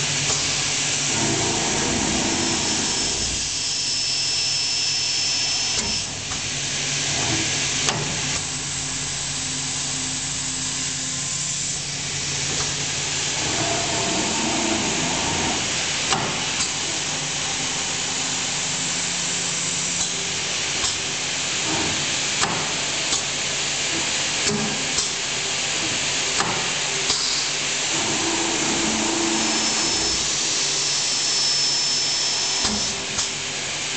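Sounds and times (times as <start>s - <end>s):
machine motors humming and hissing: 0.0s - 33.9s
pneumatic actuators clicking: 32.6s - 33.4s.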